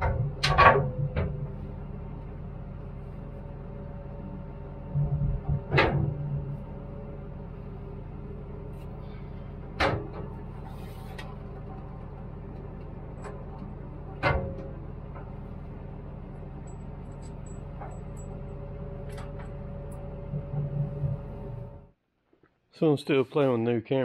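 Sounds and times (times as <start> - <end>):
engine humming: 0.0 - 22.0.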